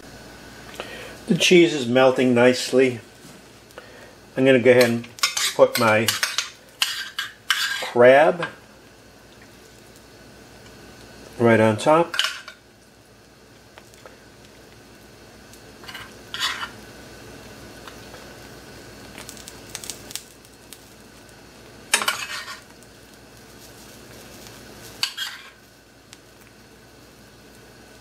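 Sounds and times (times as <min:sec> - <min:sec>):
omelette sizzling in pan: 0:00.0 - 0:28.0.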